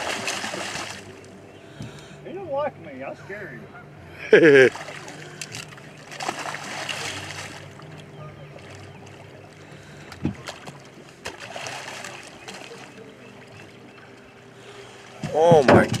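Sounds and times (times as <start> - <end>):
fish thrashing and splashing: 0.0 - 1.3, 4.6 - 9.2, 10.3 - 13.0
low motor hum: 0.0 - 16.0.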